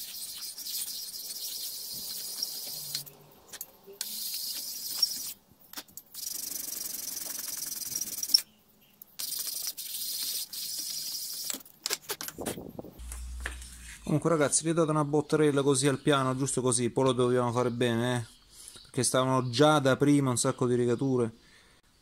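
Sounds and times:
metal rubbed on abrasive paper: 0.0 - 3.0.

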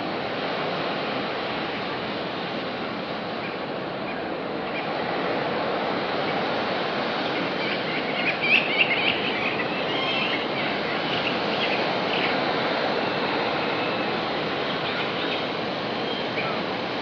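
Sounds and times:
high bird calls: 7.2 - 16.7.

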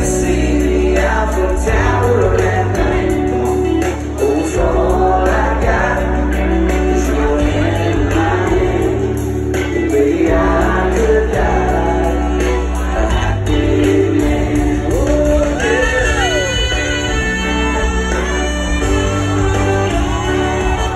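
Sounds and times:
heavy bass: 0.0 - 20.9
live country band: 0.0 - 20.9
person singing: 0.0 - 20.9
drum beat: 7.0 - 20.9.

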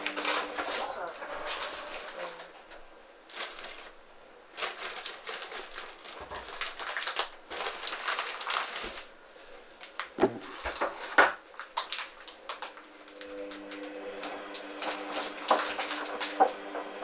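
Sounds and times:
laundry sloshing in washing machine: 0.0 - 2.7, 11.9 - 17.0
dull thumps in drum: 10.2 - 10.7.

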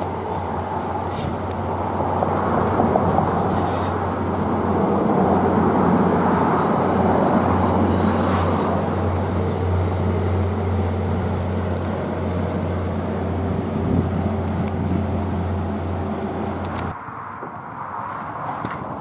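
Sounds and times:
train rumbling past: 0.0 - 16.9
faint clicks of train: 0.8 - 1.6, 11.6 - 12.6, 14.4 - 14.8, 16.6 - 16.9.

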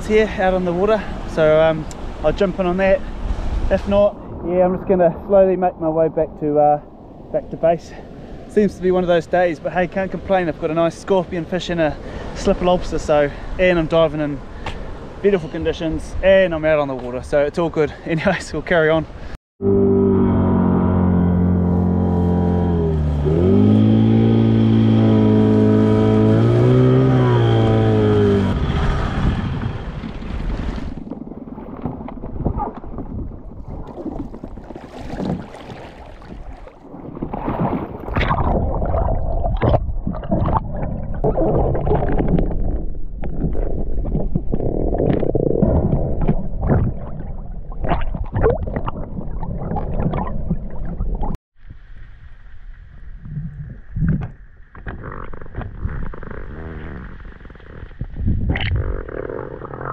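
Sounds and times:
outboard motor running: 20.2 - 30.5
water splashing and sloshing: 28.6 - 56.3
underwater bubbling and clicking: 38.0 - 51.4.

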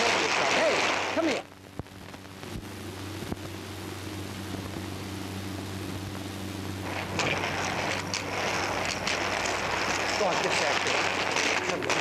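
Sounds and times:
film soundtrack hiss and hum: 0.0 - 12.0.

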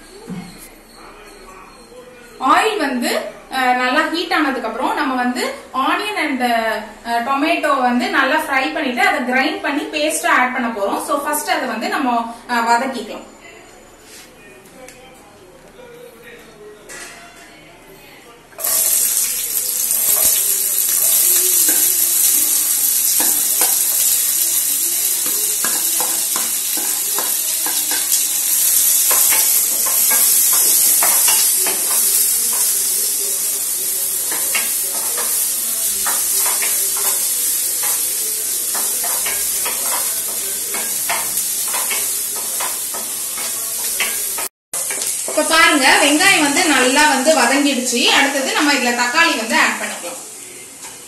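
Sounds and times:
onions sizzling in hot oil: 18.6 - 50.9.

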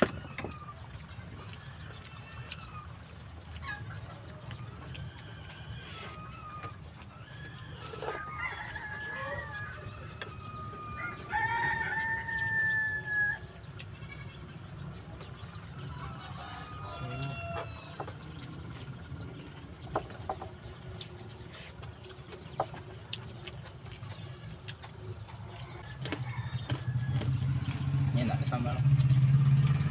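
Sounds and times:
rooster crowing: 4.8 - 13.6, 15.8 - 18.1, 25.8 - 27.7.

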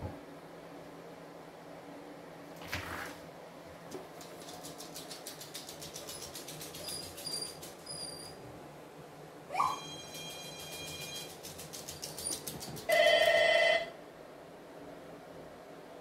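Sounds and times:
dog claws clicking on floor: 3.9 - 8.0, 10.2 - 13.2
short high-pitched beeps: 9.6 - 11.4.

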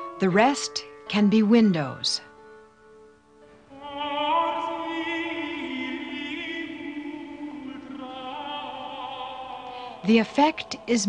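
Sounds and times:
classical singing with vibrato: 3.6 - 11.0.

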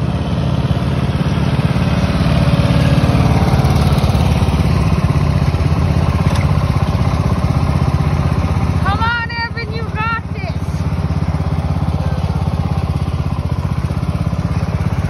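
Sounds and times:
lawn tractor engine running: 0.0 - 15.0.

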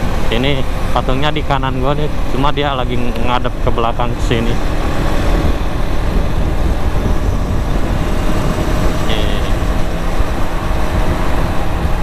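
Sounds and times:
motorcycle engine cruising: 0.0 - 12.0
road traffic: 0.0 - 12.0
wind rushing over microphone: 0.0 - 12.0.

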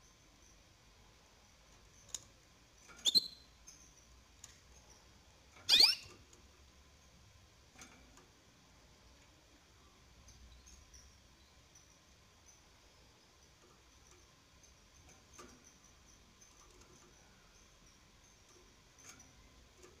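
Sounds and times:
canary chirping: 1.8 - 6.4, 10.0 - 20.0.

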